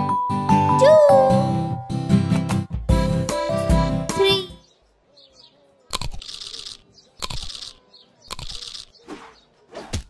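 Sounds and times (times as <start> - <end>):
cartoon crunching bites: 5.9 - 8.9.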